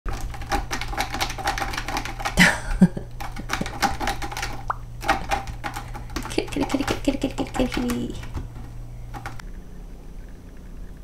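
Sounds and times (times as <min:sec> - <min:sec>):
kitten clawing at rope: 0:00.1 - 0:02.4, 0:03.2 - 0:09.4.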